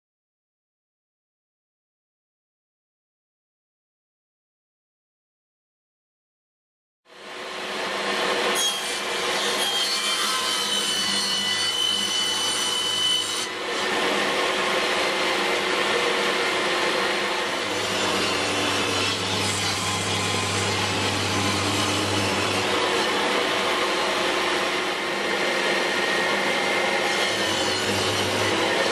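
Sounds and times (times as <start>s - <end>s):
table saw cutting: 7.1s - 28.9s
dust extractor: 7.2s - 9.6s, 10.6s - 28.9s.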